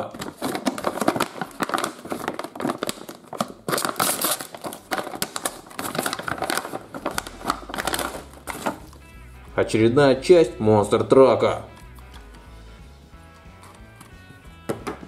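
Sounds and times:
plastic bag crinkling: 0:00.0 - 0:09.1.

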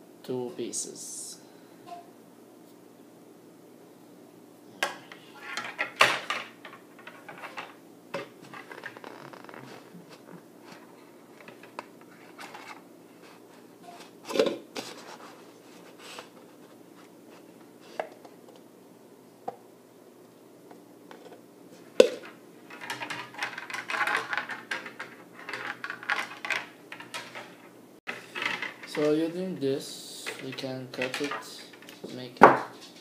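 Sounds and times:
scraping and rustling: 0:05.3 - 0:18.1, 0:21.1 - 0:33.0.

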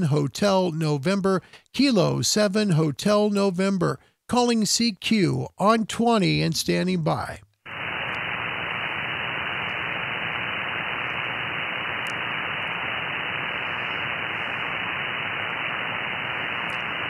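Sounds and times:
radio band noise hiss: 0:07.7 - 0:17.0.

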